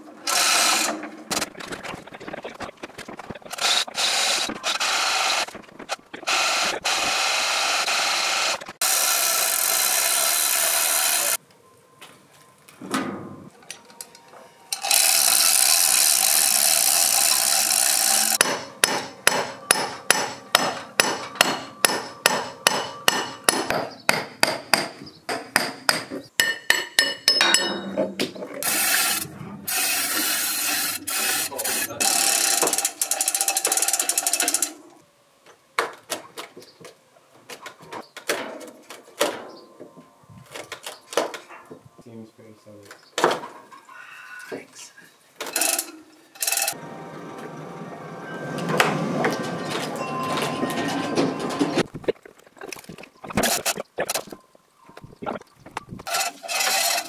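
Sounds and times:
chain hoist ratcheting clicks: 8.8 - 11.4, 14.7 - 18.4, 29.8 - 34.8, 45.5 - 46.8.

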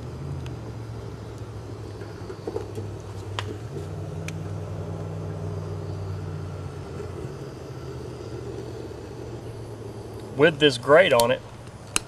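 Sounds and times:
vehicle engine hum: 0.0 - 12.0.

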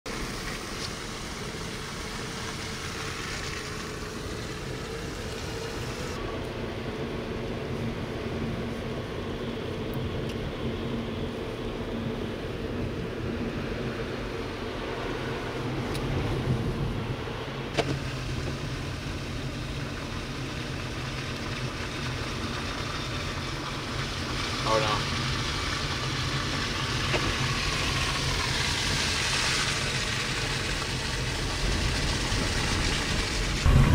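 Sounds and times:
road and tyre noise: 0.0 - 33.9
vehicle engine running: 17.9 - 33.9.

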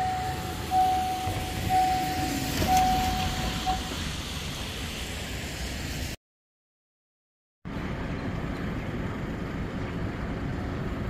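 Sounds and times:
level crossing warning tone: 0.0 - 4.1
car tyres hissing on wet road: 1.4 - 6.2.

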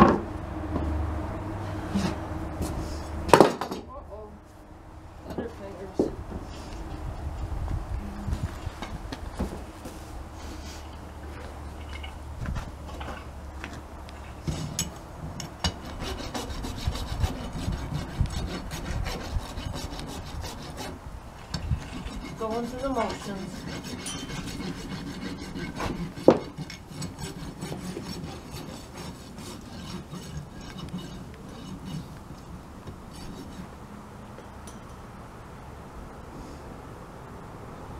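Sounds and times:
hoof rasp filing: 15.6 - 32.2, 33.1 - 33.7.

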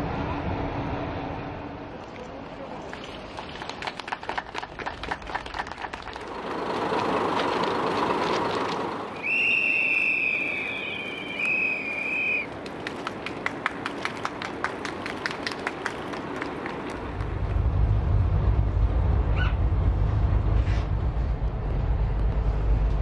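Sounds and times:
crowd applauding and cheering: 2.9 - 17.5.

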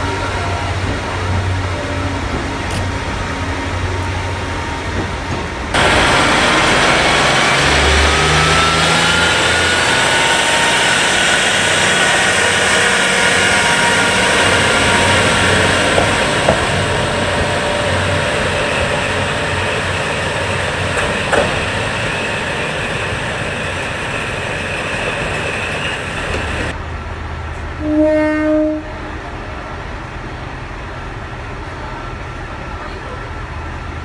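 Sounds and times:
diesel railcars running: 0.0 - 34.0
train horn: 11.9 - 18.5, 27.8 - 29.2.

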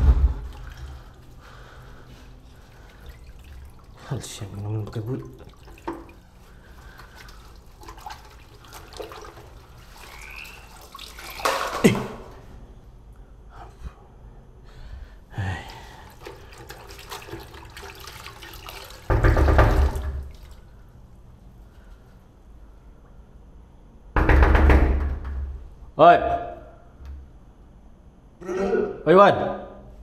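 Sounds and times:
hands splashing water in a basin: 0.0 - 12.4, 15.9 - 20.7.

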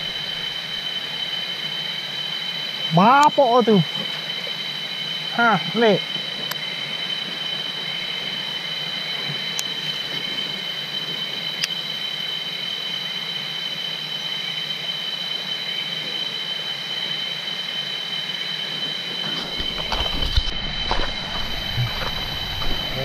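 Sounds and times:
insects droning: 0.0 - 23.0
stream water hissing: 0.0 - 23.0.

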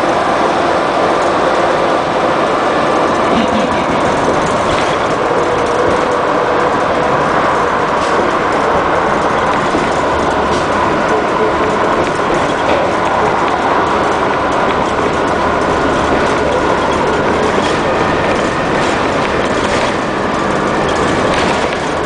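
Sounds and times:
bus engine whining: 0.0 - 22.0
light rattles and clicks: 3.2 - 22.0.

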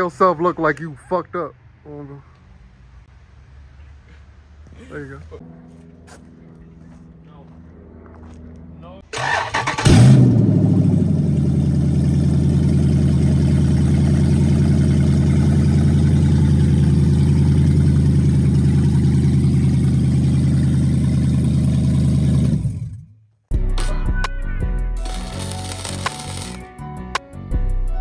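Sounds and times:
loud engine idling: 9.2 - 23.0.

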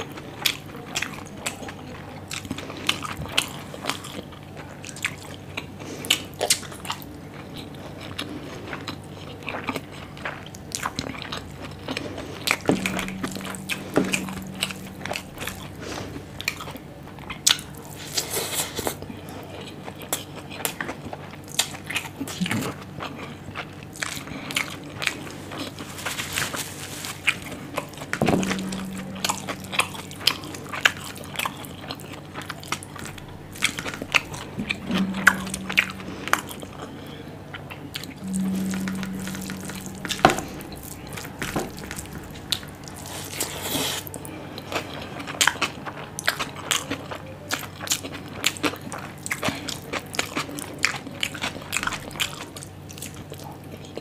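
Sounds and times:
low hum: 12.5 - 16.6, 22.3 - 23.8, 28.1 - 43.2.

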